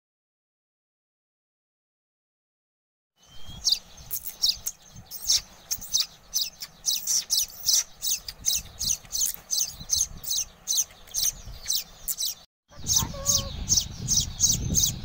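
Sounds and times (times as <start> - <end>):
nestlings begging with high chirps: 3.2 - 15.0.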